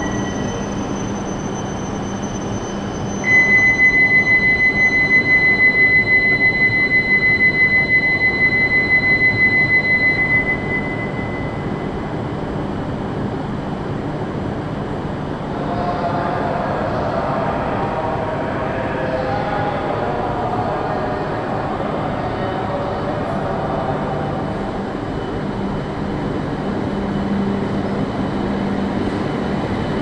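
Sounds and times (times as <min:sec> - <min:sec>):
pulsing electronic signal tone: 0:00.0 - 0:12.2
platform hum: 0:00.0 - 0:30.0.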